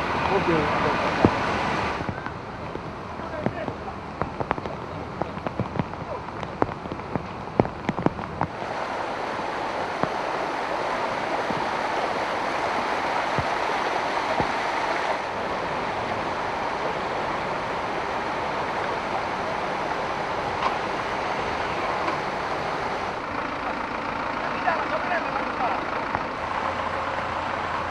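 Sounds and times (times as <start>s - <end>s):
floodwater rushing: 0.0s - 27.9s
sharp crackles: 1.2s - 8.6s.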